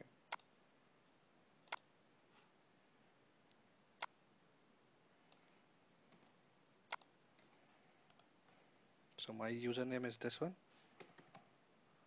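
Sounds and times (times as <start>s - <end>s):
computer mouse clicks: 0.3s - 0.5s, 1.6s - 1.9s, 5.3s - 5.5s, 6.1s - 8.4s, 11.0s - 11.6s.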